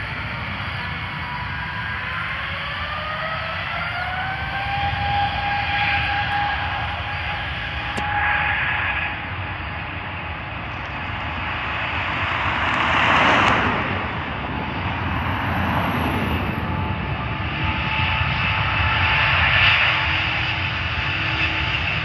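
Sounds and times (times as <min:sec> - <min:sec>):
jet engines rumbling: 0:00.0 - 0:22.0
thin engine whine: 0:00.0 - 0:22.0
cars passing: 0:11.2 - 0:17.3.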